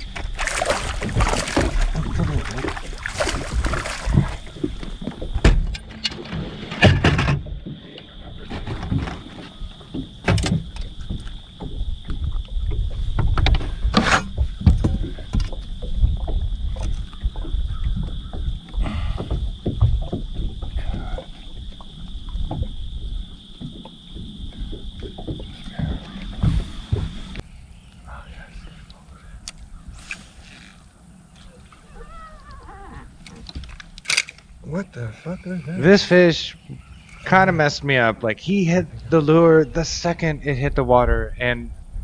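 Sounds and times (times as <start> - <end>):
water slapping against boat hull: 0.0 - 5.8
wind rumbling on microphone: 0.0 - 35.9, 38.8 - 42.0
knocks and clunks of gear: 8.4 - 22.9, 32.9 - 34.5.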